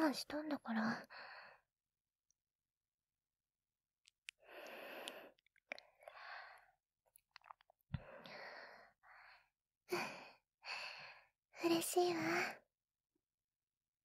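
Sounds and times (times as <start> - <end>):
woman breathing softly: 1.0 - 1.6, 4.4 - 5.4, 6.0 - 6.8, 8.0 - 11.3, 12.0 - 12.6
faint mouth clicks: 4.3 - 6.2.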